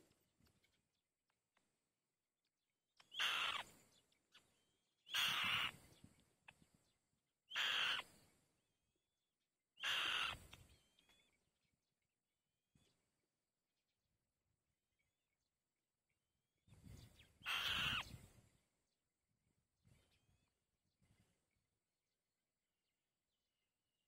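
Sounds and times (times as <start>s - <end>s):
bird of prey raspy screeches: 3.1s - 3.7s, 5.1s - 5.8s, 7.5s - 8.1s, 9.8s - 10.5s, 17.4s - 18.2s.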